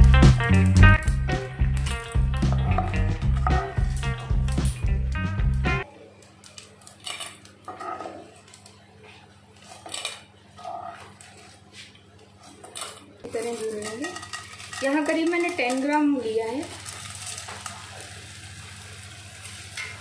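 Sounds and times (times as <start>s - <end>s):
spatula knocking and scraping pan: 1.8s - 4.5s.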